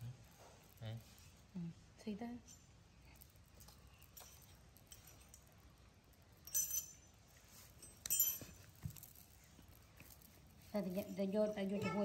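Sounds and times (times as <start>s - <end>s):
metal spoon clinking on tile: 6.4s - 7.1s, 7.9s - 8.6s.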